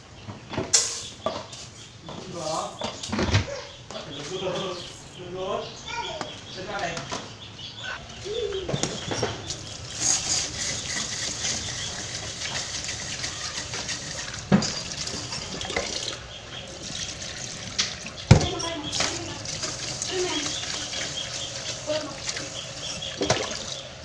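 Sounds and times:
tap water running into a pot: 10.2 - 23.9.

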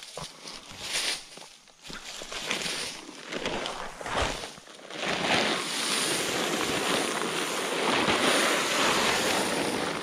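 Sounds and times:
corn kernels pouring onto leaves: 2.2 - 10.0.

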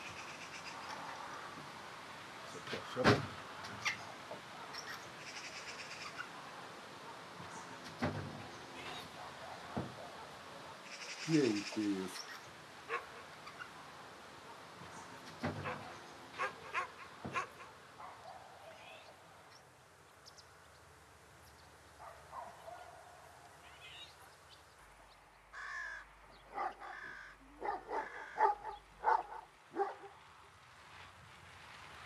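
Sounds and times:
crows cawing: 4.7 - 6.4, 25.5 - 29.5.

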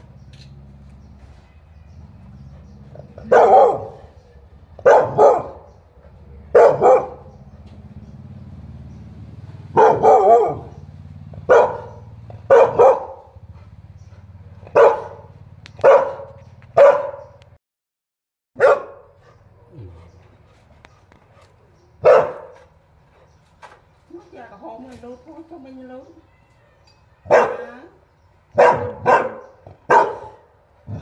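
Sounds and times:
dog barking: 3.2 - 4.2, 4.8 - 5.8, 6.4 - 7.4, 9.7 - 10.8, 11.4 - 13.5, 14.6 - 17.4, 18.6 - 19.2, 22.0 - 22.7, 27.2 - 27.9, 28.5 - 31.0.

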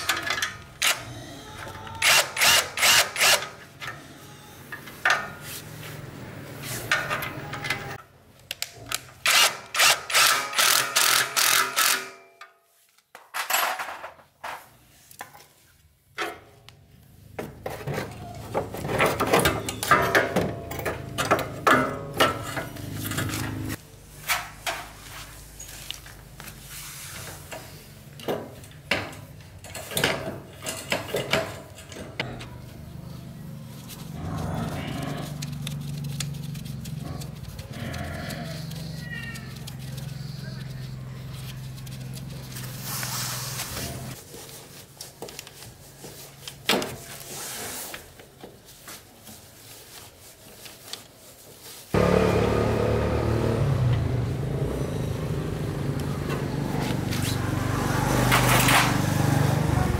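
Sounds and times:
tool scraping and clattering: 17.4 - 25.8, 27.3 - 32.7, 58.0 - 59.4.

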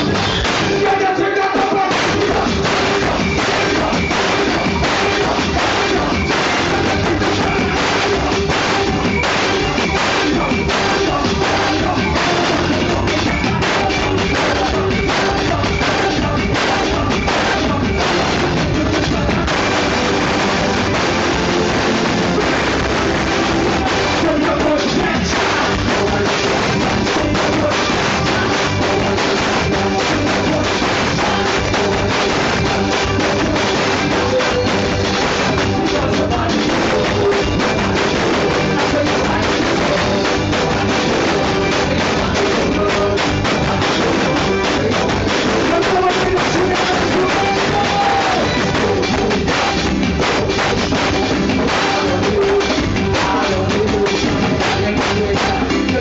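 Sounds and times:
drum kit: 0.0 - 56.0
keyboards: 0.0 - 56.0
live band playing dance music: 0.0 - 56.0
person singing: 0.0 - 56.0.

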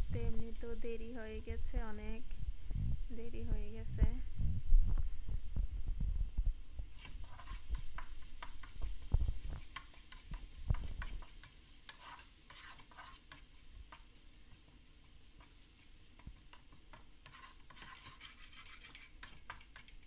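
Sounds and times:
garlic frying in oil: 6.9 - 20.0
wooden spatula scraping pan: 7.0 - 14.0, 15.4 - 20.0.

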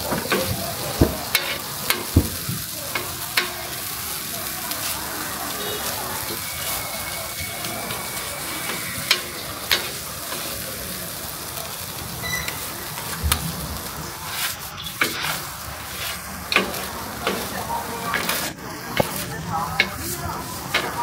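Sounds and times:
corn sizzling on a griddle: 0.0 - 21.0
sharp clicks on griddle: 0.1 - 3.6, 9.1 - 10.5, 14.3 - 15.4, 16.0 - 19.2, 19.8 - 20.1, 20.7 - 21.0.

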